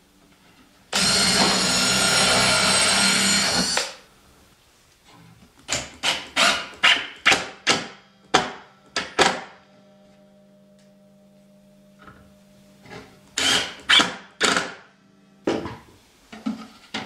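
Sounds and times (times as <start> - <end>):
drill driving screw into plywood: 0.9 - 4.0, 5.7 - 7.5, 13.4 - 14.8.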